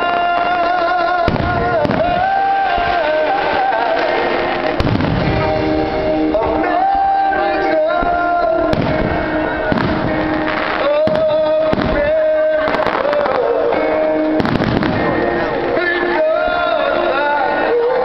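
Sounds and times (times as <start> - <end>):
fireworks bangs: 0.0 - 6.9, 8.0 - 13.6, 14.4 - 15.5
music: 0.0 - 18.0.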